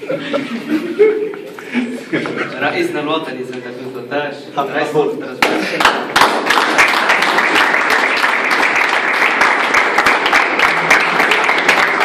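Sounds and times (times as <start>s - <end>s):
people applauding: 5.4s - 12.0s.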